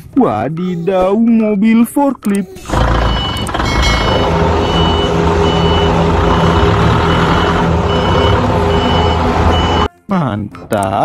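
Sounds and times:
forklift engine humming: 2.6s - 9.9s
forklift warning alarm beeping: 2.9s - 9.9s.

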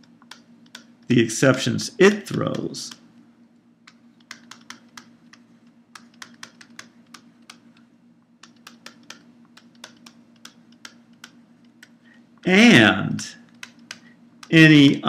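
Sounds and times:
stylus tapping on pen tablet: 3.9s - 5.4s, 6.0s - 7.7s, 8.4s - 12.0s.

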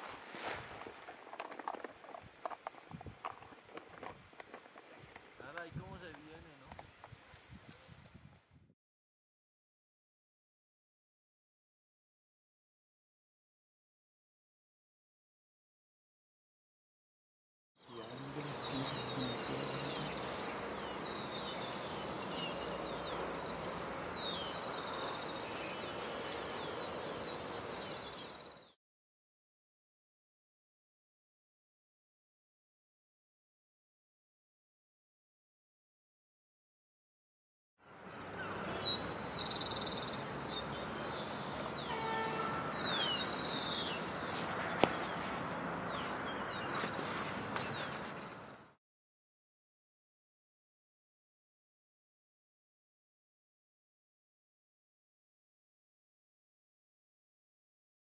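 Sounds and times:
birds chirping: 17.8s - 28.8s, 38.0s - 48.8s.

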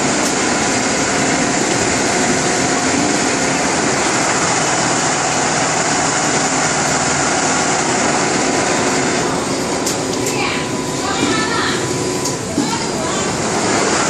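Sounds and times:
sewing machine running: 0.0s - 10.3s, 13.2s - 14.0s.

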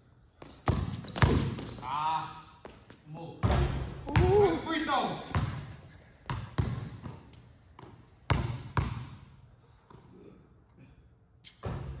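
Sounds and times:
basketball bouncing on hardwood floor: 0.4s - 1.8s, 6.3s - 9.2s.

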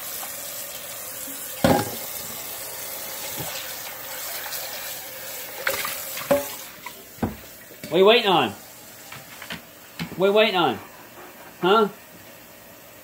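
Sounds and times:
faucet running into metal bowl: 0.0s - 7.9s
metal bowl clanking on sink: 1.6s - 2.1s, 5.6s - 6.6s.

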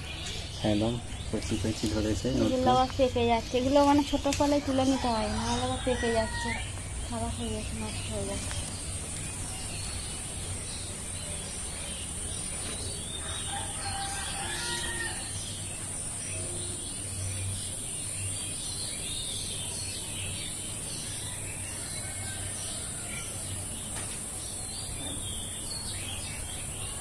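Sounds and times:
small birds chirping: 0.0s - 27.0s
rooster crowing: 4.7s - 6.8s, 13.1s - 15.5s, 21.4s - 23.5s.

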